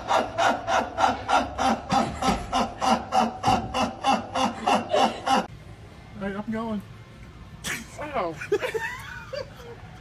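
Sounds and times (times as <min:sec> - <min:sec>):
man laughing hard: 0:00.0 - 0:05.5, 0:08.4 - 0:09.8.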